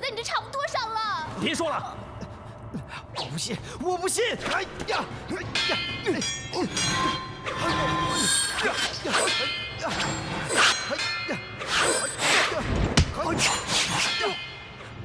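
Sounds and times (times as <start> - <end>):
metal weapons clanging: 5.4 - 15.0.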